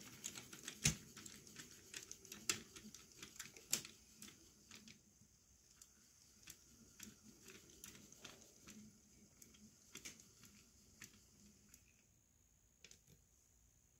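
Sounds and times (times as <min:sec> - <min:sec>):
model train wheels clicking: 0:00.0 - 0:05.0, 0:05.6 - 0:11.9.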